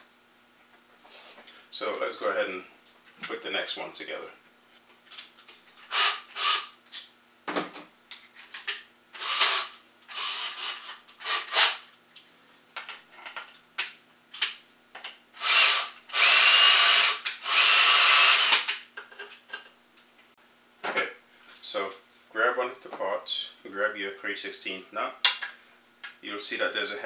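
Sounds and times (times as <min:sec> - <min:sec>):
cordless drill drilling plastic: 0:05.9 - 0:06.7, 0:09.2 - 0:11.8, 0:15.4 - 0:18.7.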